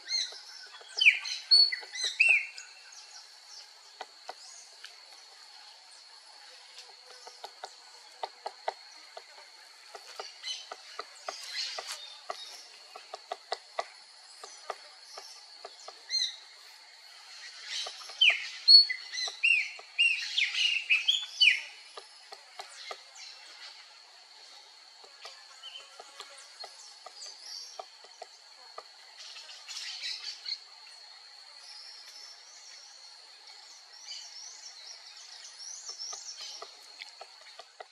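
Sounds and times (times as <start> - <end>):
woodpecker tapping bark: 0.0 - 2.5, 3.9 - 4.5, 6.9 - 16.3, 17.8 - 23.2, 25.0 - 28.9, 35.6 - 37.9
bird chirping: 0.0 - 37.9.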